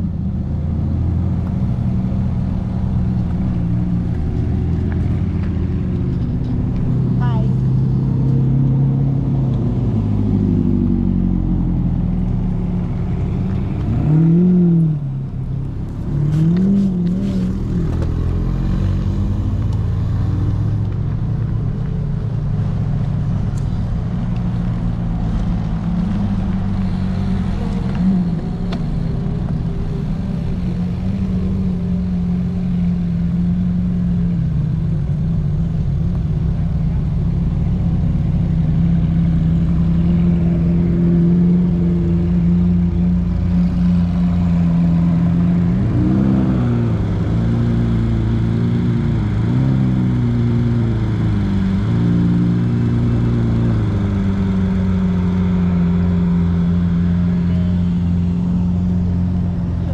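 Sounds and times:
sports car engines revving: 0.0 - 59.9.

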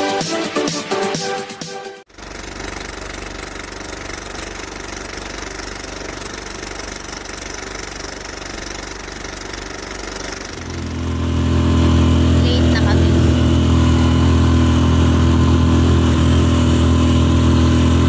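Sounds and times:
engine running with low pulse: 2.1 - 18.0.

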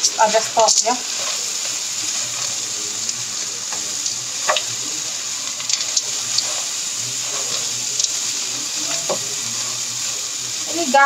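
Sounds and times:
food sizzling in frying pan: 0.0 - 11.0.

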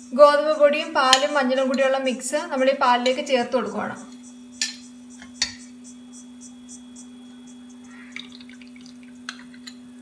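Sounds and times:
spoon clinking on kitchenware: 4.6 - 5.6
batter pouring into saucepan: 8.2 - 9.5.

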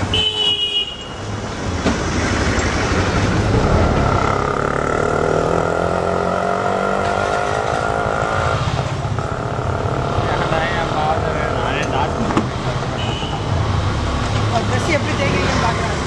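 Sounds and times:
car horn toot: 0.0 - 1.2, 13.0 - 13.6
vehicle engine droning: 1.3 - 16.0.

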